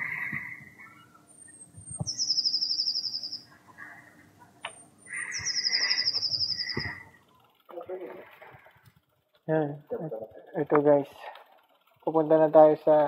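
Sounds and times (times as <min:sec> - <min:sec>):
songbird singing high trill: 0:01.9 - 0:03.5, 0:05.2 - 0:07.0.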